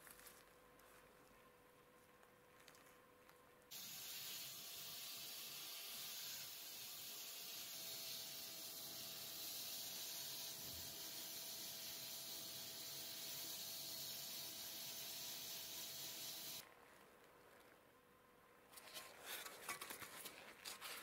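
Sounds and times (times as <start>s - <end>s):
spray gun hissing: 3.7s - 16.6s.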